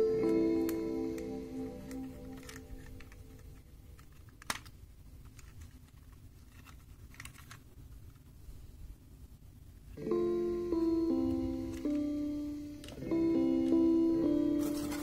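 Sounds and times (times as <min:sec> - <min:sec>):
plastic toy clicking: 0:04.0 - 0:07.6.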